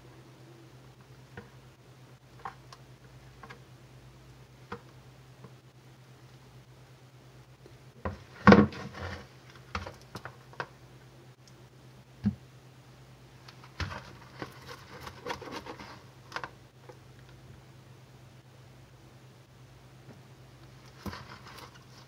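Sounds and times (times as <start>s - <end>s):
spatula scraping plastic bowl: 13.6s - 16.1s, 20.9s - 22.0s.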